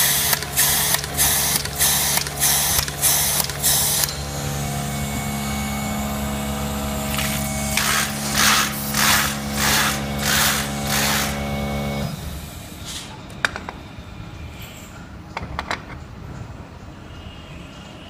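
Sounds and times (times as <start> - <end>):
machine motors humming: 0.0 - 12.8.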